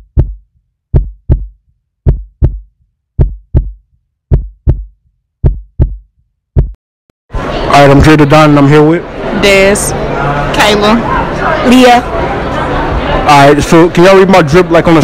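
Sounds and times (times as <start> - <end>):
heartbeat thumps: 0.0 - 6.8.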